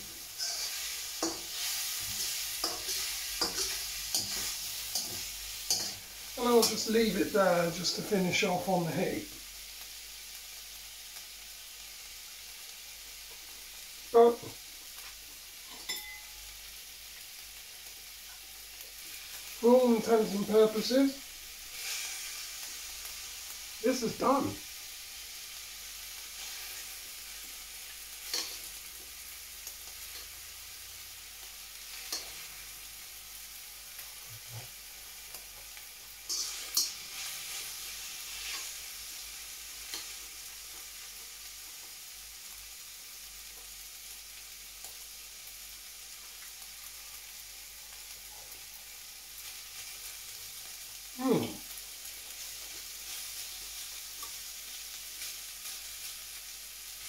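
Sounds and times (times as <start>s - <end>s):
stir-fry sizzling in a wok: 0.0s - 57.0s
chopsticks scraping a wok: 0.4s - 6.9s, 21.7s - 22.4s, 28.2s - 28.7s, 36.3s - 38.8s.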